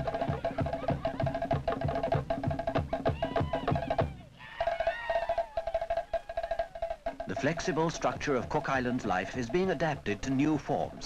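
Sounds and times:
bass drum beat: 0:07.1 - 0:11.0.

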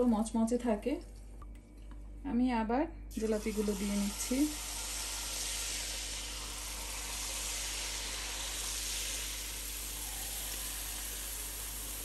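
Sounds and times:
batter sizzling in hot oil: 0:03.1 - 0:12.0.

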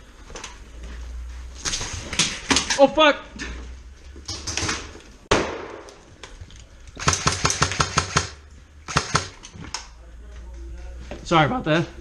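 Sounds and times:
airsoft rifle shots: 0:07.0 - 0:09.4.

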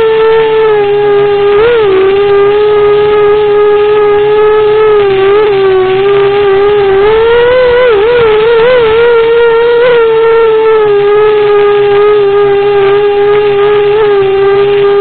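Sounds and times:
quadcopter motors whining: 0:00.0 - 0:15.0.

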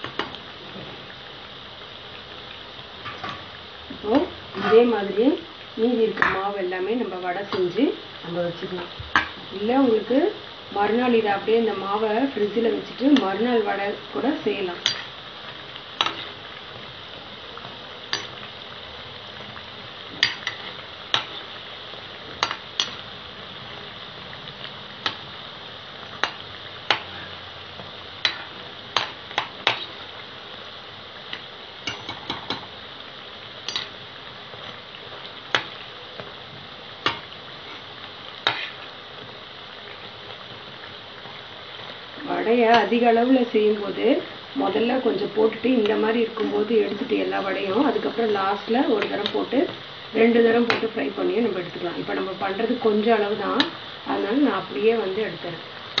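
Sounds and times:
food sizzling in hot oil: 0:00.0 - 0:56.0
metal spoon clinking on pan: 0:14.8 - 0:15.1, 0:18.1 - 0:18.4, 0:20.2 - 0:21.4, 0:22.4 - 0:23.0, 0:31.8 - 0:32.7, 0:33.7 - 0:34.0.

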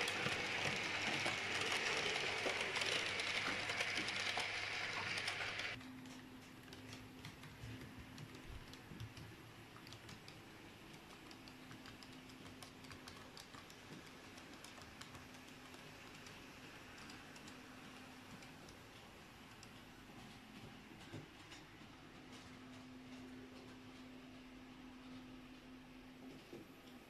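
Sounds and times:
model train clicking on track: 0:00.0 - 0:05.8, 0:09.8 - 0:17.6.

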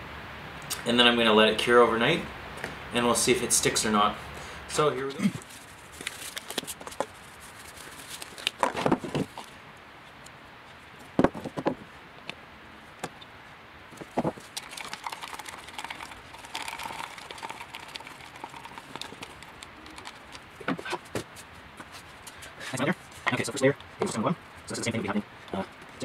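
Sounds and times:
clicks and knocks on wooden bench: 0:11.2 - 0:11.8
stir stick scraping plastic cup: 0:14.3 - 0:21.1.

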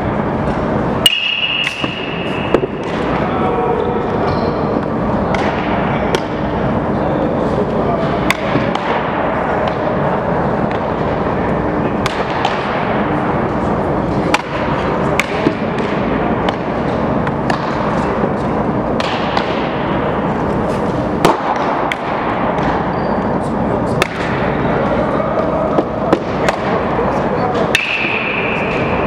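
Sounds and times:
steady background din: 0:00.0 - 0:29.0
baseballs cracking off bats: 0:11.9 - 0:22.9.

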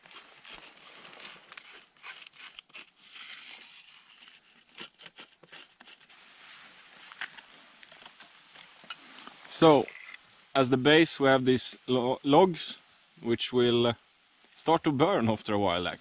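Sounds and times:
rustling of dry sticks: 0:00.0 - 0:10.8.

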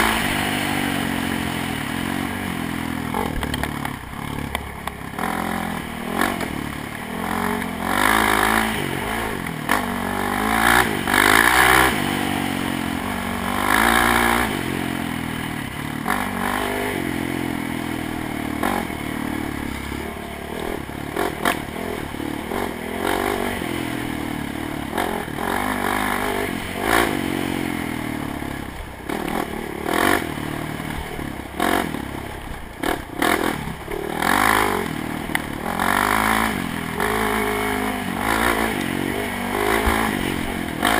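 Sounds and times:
engine revving: 0:00.0 - 0:40.9.

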